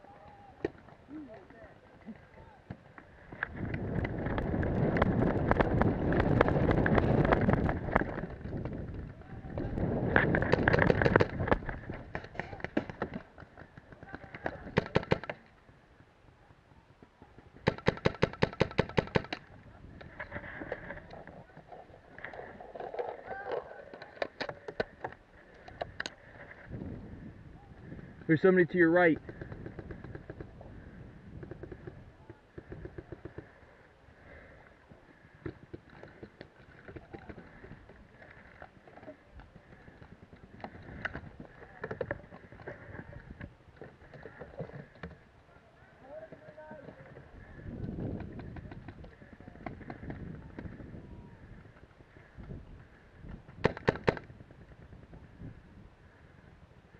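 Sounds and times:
gear knocking and rustling: 3.0 - 19.4
paintball marker rapid shots: 10.2 - 15.4, 17.3 - 19.4, 53.6 - 54.3.

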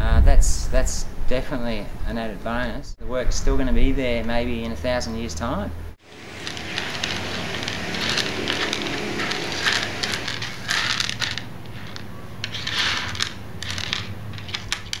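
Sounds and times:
mosaic pieces clicking and crunching: 6.3 - 15.0.

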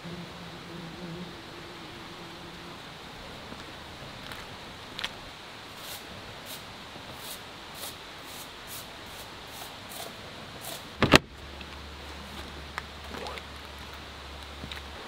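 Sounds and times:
steady low hum: 0.0 - 15.0
crunching footsteps: 3.2 - 6.6, 10.7 - 15.0
car door shutting: 11.0 - 11.3.

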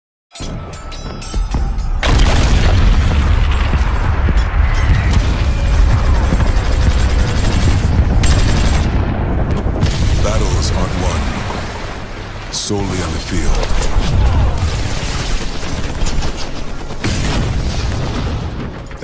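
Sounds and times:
heavy booms: 2.0 - 16.3
deep continuous rumble: 2.0 - 19.0.

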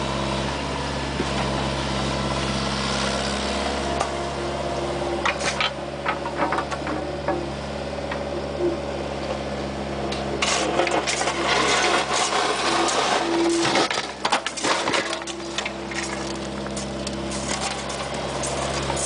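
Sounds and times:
excavator diesel engine running: 0.0 - 19.0
bucket scraping dirt and asphalt: 10.4 - 19.0.

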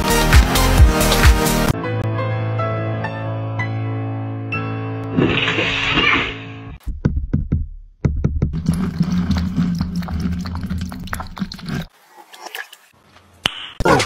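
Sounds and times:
cat lapping water: 8.6 - 12.9.

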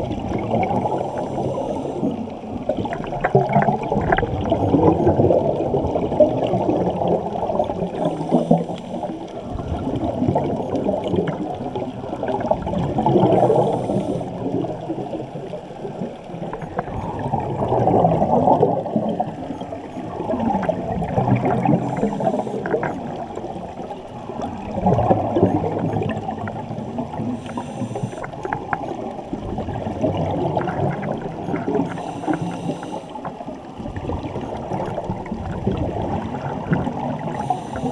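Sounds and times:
muffled underwater water noise: 0.0 - 37.9
faint hissing: 0.6 - 2.3, 7.8 - 9.3, 13.2 - 15.0, 21.8 - 22.9, 27.2 - 28.4, 31.9 - 33.5, 37.2 - 37.9.

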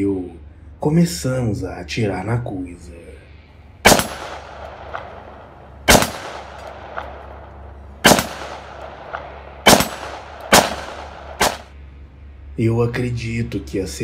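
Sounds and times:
gunshots echoing: 3.8 - 11.8.

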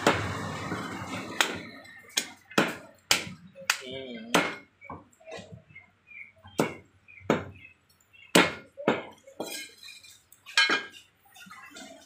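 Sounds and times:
cleaver chopping on wooden block: 1.4 - 3.4, 6.5 - 7.5, 8.3 - 9.1.

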